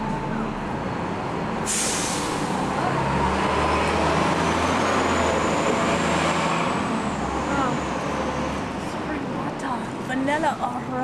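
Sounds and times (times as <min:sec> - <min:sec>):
low engine rumble: 0:00.0 - 0:01.7
street traffic: 0:00.0 - 0:11.0
air brake hiss: 0:01.6 - 0:02.6.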